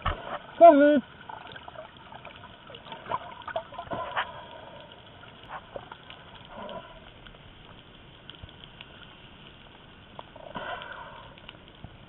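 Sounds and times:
bubbles popping and splashes: 0:00.0 - 0:04.4
water sloshing and trickling: 0:00.0 - 0:12.0.

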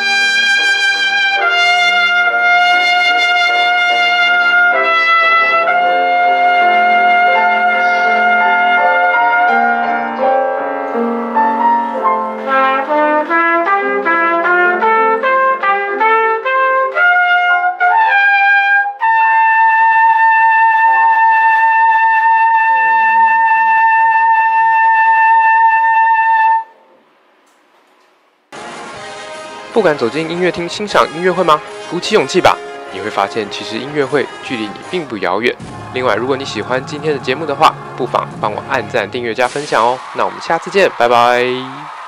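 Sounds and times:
piano chords: 0:00.0 - 0:18.1, 0:28.6 - 0:42.0
trumpet playing: 0:00.0 - 0:26.8, 0:28.6 - 0:40.2.

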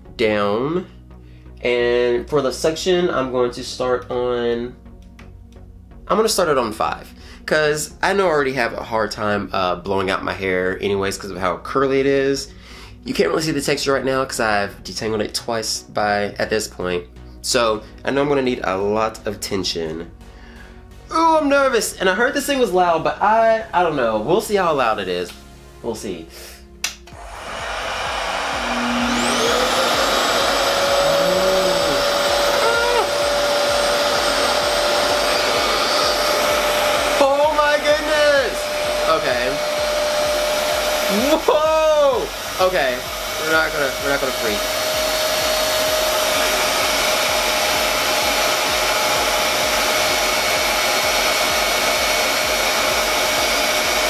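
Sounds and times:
hair dryer motor whine and airflow: 0:27.0 - 0:54.0.

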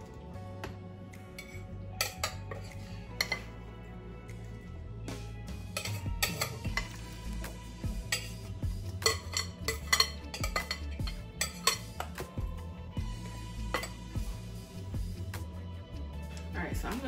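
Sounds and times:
utensil scraping glass bowl: 0:08.0 - 0:12.1.

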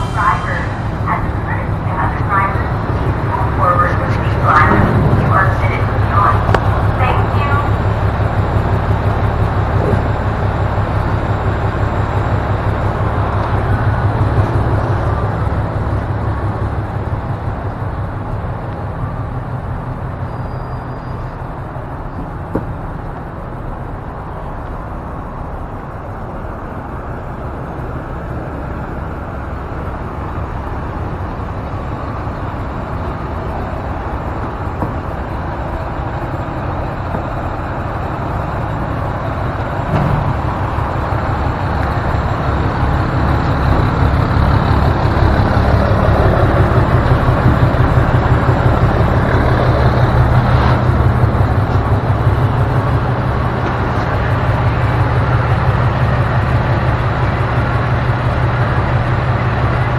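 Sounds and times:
low rhythmic pulsing: 0:00.0 - 0:20.2
truck engine running: 0:00.0 - 0:59.9.

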